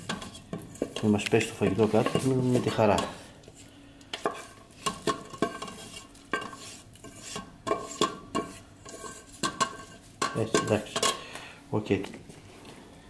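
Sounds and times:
wooden spoon knocking metal bowl: 9.4s - 11.2s.

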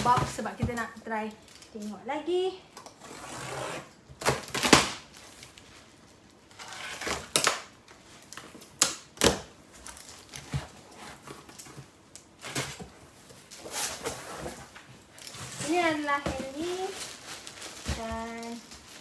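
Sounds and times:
cardboard boxes rustling: 0.0s - 1.3s, 9.7s - 19.0s.

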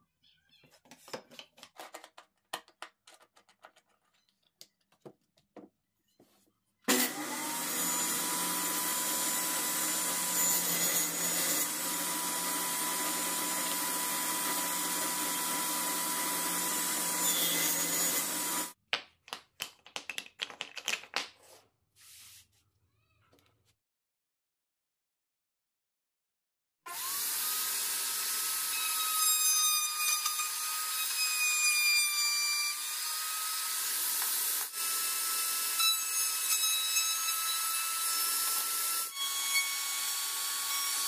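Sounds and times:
table saw running: 6.9s - 18.8s, 26.9s - 29.2s.

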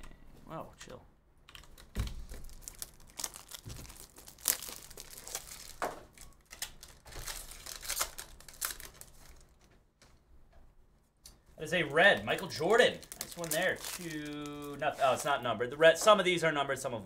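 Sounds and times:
foil wrapper tearing and crinkling: 1.6s - 9.6s, 11.9s - 15.3s.

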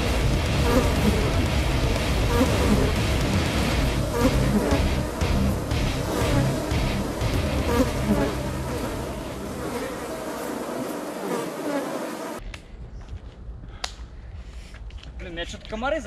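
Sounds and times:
flying insects buzzing: 0.0s - 12.4s.

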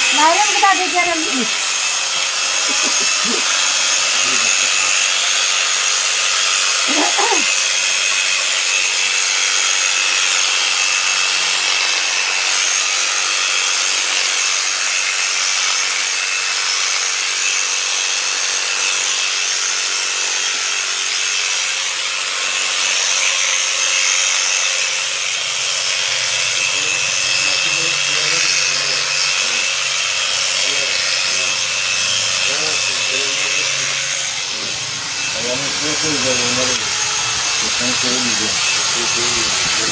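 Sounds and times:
clipper shearing fleece: 0.0s - 39.9s
electric clipper whine: 0.0s - 39.9s.

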